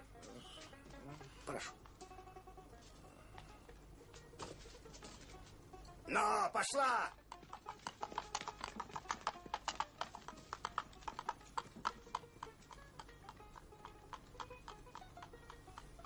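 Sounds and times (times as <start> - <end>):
soft music: 0.0 - 7.3, 11.1 - 16.0
horse hooves clip-clopping: 0.0 - 16.0.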